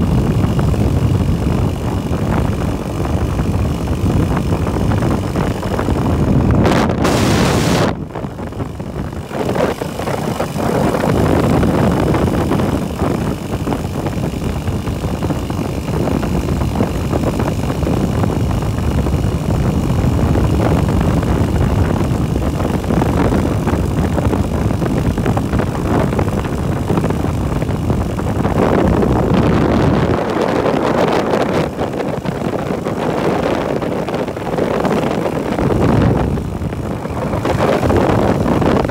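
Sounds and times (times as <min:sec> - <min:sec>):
motorbike engine and road noise: 0:00.0 - 0:38.9
wind buffeting microphone: 0:00.0 - 0:38.9.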